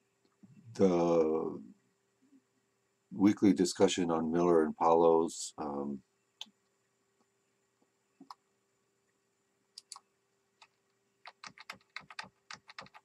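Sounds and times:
computer mouse clicks: 9.8 - 10.0, 10.6 - 13.0
keyboard keystrokes: 11.2 - 13.0.

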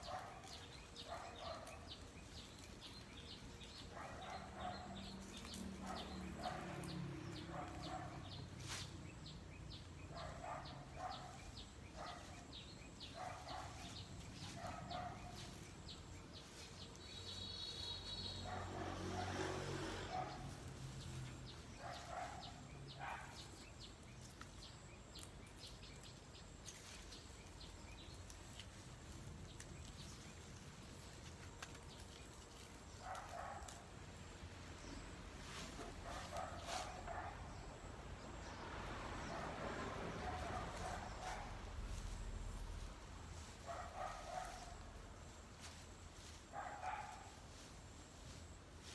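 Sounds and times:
small birds chirping: 0.0 - 19.3, 19.9 - 48.9
leafy branches rustling: 0.0 - 48.9.

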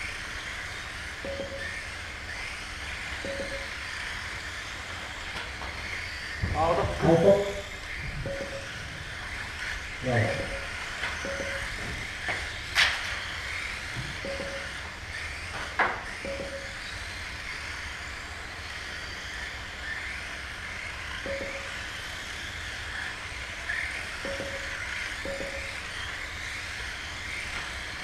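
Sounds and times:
small electric motors whirring: 0.0 - 28.0
short beeps: 1.3 - 1.8, 3.2 - 3.8, 8.3 - 8.8, 10.2 - 11.8, 14.3 - 14.8, 16.2 - 16.8, 21.3 - 21.8, 24.3 - 24.7, 25.3 - 25.8.

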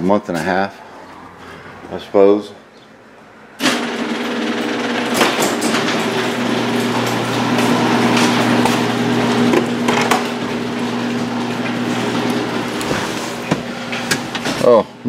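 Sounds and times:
sharp knocks and clanks: 3.6 - 14.7
machine humming: 3.6 - 15.0.

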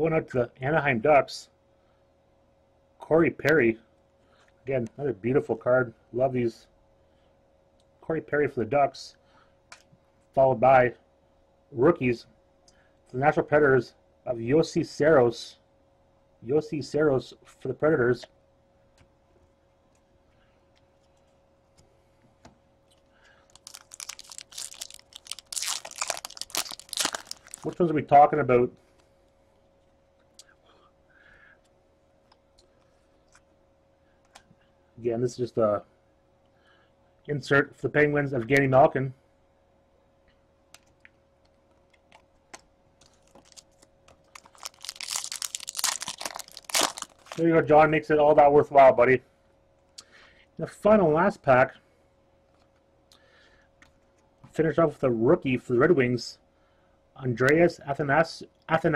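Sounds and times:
foil wrapper crackling: 23.5 - 27.8, 43.0 - 47.4.

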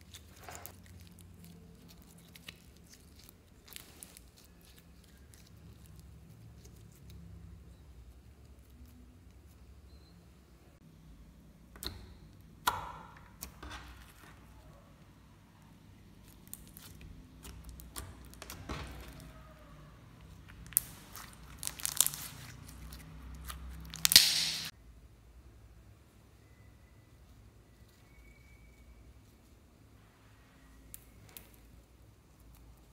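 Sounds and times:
slime clicking and crackling: 0.0 - 7.8, 16.2 - 19.4, 20.2 - 24.7.

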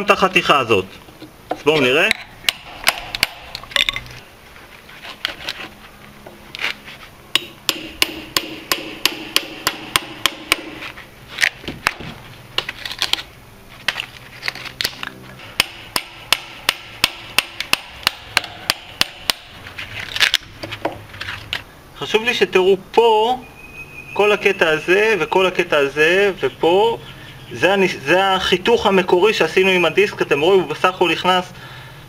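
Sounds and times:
hammer striking steel chisel: 2.1 - 3.6, 7.4 - 10.9, 15.6 - 19.6.

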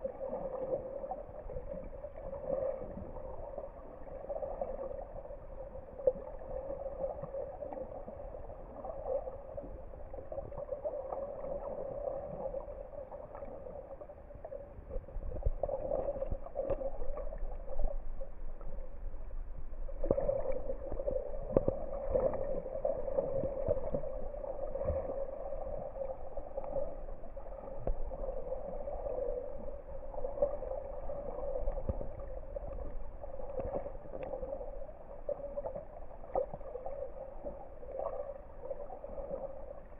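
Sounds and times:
muffled underwater wash: 0.0 - 39.9
underwater clicks and gurgles: 0.0 - 39.9.

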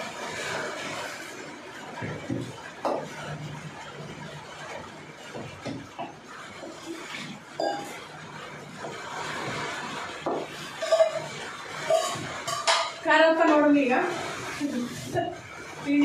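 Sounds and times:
metal pots clinking and scraping: 4.6 - 14.0.

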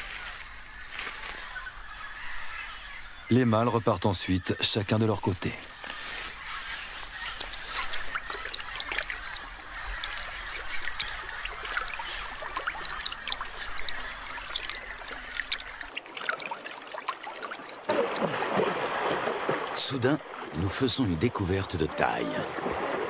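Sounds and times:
river water splashing: 5.0 - 23.0
honking bird calls: 17.9 - 23.0.

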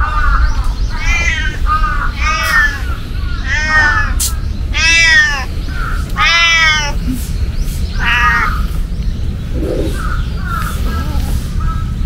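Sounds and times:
steady low rumble: 0.0 - 12.0
cat meowing: 0.9 - 7.0, 8.0 - 8.7.

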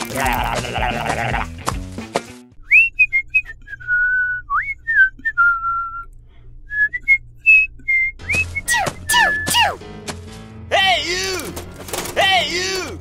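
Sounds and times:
person whistling a tune: 2.6 - 6.1, 6.7 - 9.8.

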